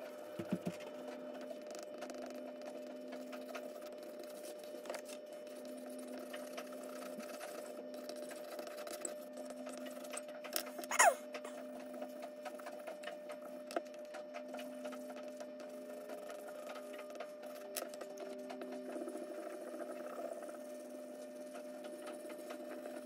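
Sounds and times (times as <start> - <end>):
steady low hum: 0.0 - 23.0
charcoal pencil scratching on paper: 1.6 - 10.3
short falling squeak: 10.9 - 11.5.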